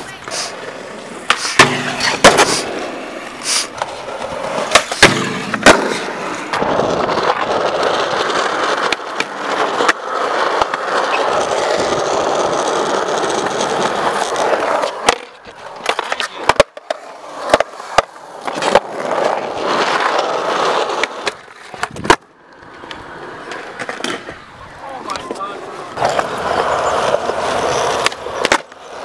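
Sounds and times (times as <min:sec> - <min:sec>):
skateboard clacking: 0:00.0 - 0:29.0
skateboard wheels rolling on concrete: 0:00.0 - 0:29.0.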